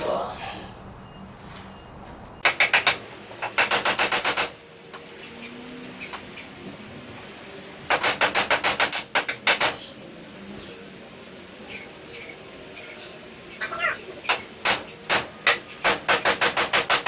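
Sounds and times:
hammer driving nails into wood: 0:02.4 - 0:04.6, 0:07.9 - 0:09.9, 0:14.6 - 0:17.0.

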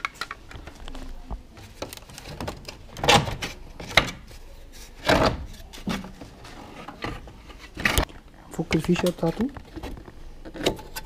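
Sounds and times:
plastic knocks and scrapes: 0:00.0 - 0:08.1.

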